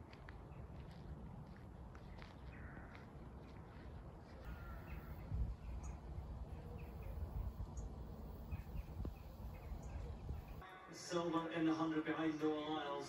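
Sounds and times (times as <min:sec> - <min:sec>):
wind rumble on microphone: 0:00.2 - 0:10.6
crows cawing: 0:02.5 - 0:03.2, 0:04.4 - 0:05.5.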